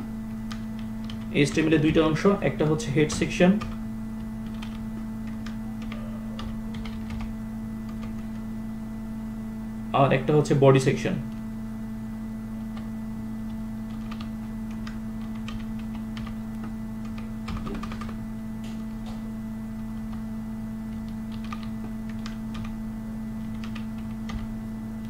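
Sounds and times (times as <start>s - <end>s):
electrical hum: 0.0s - 25.0s
keyboard typing: 0.4s - 8.5s, 12.6s - 20.3s, 20.9s - 22.8s, 23.4s - 24.6s.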